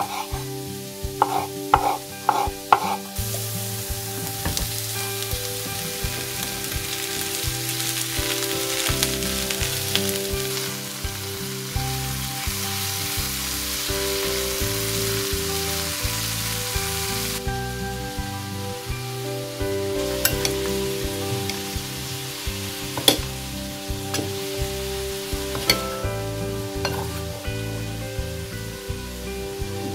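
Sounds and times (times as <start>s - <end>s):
spatula stirring in pan: 0.0s - 0.6s, 1.2s - 3.6s
vegetables sizzling in oil: 0.0s - 29.9s
knife cutting on wooden board: 1.2s - 3.0s.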